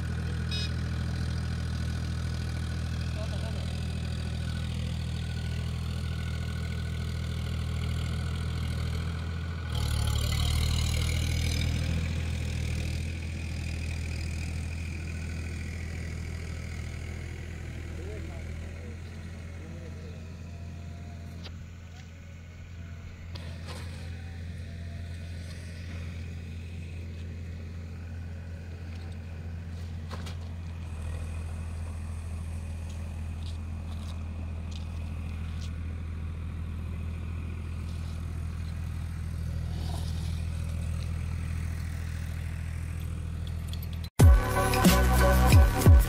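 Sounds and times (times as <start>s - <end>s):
engine idling: 0.0s - 46.0s
faint scrapes: 39.5s - 41.0s.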